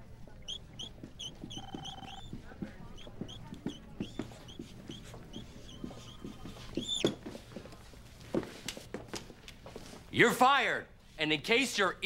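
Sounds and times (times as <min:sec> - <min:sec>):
marker squeaking on board: 0:00.4 - 0:07.2.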